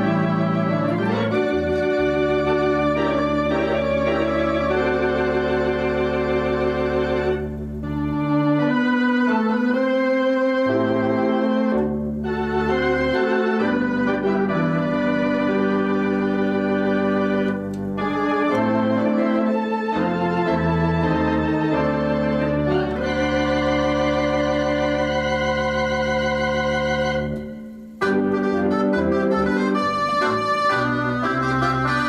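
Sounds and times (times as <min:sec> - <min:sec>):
electronic organ playing chords: 0:00.0 - 0:32.0.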